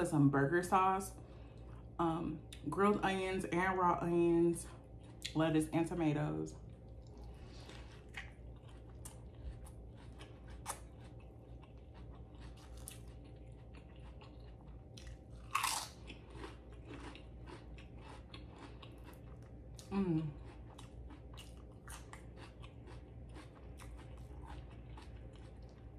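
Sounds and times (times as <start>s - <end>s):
crisp chewing crunches: 6.6s - 25.9s.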